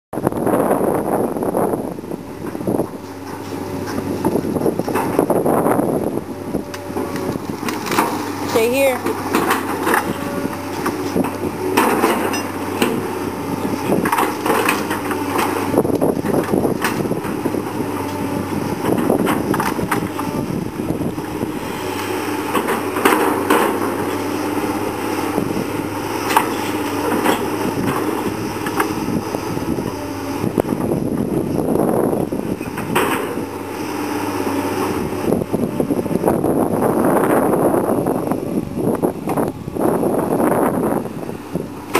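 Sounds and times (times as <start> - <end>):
excavator diesel engine running: 0.2 - 41.9
branches cracking and knocking: 6.7 - 8.5.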